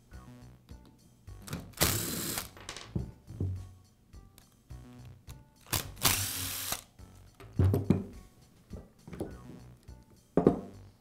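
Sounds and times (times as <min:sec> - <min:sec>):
cordless driver whirring: 0:05.8 - 0:06.8.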